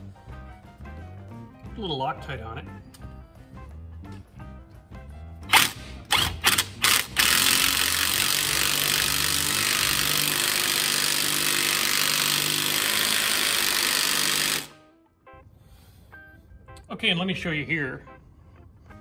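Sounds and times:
impact wrench running: 5.5 - 14.8.

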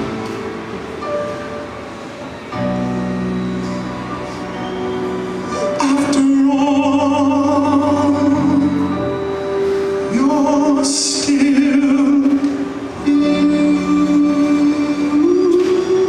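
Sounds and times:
instrumental backing track: 0.0 - 16.0
man singing into microphone: 5.6 - 9.2, 10.0 - 16.0.

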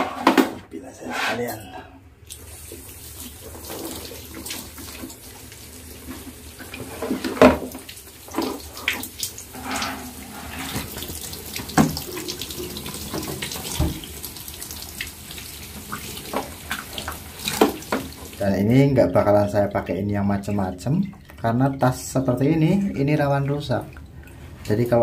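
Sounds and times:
tap water running: 2.2 - 25.0
splashes and knocks of handling: 2.3 - 14.2, 14.8 - 18.4.

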